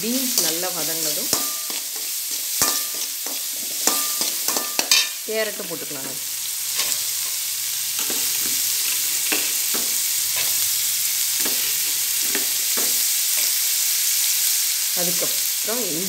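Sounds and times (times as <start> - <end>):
vegetables sizzling in oil: 0.0 - 16.0
metal spoon scraping pan: 0.3 - 5.2, 6.7 - 7.4, 8.0 - 10.7, 11.4 - 13.7.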